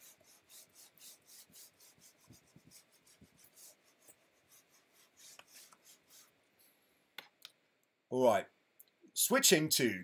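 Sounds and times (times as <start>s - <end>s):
pen scratching on paper: 0.0s - 6.4s.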